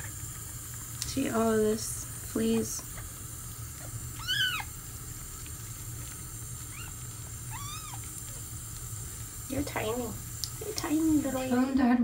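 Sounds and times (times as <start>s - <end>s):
kitten mewing: 4.1s - 4.8s, 6.6s - 8.5s.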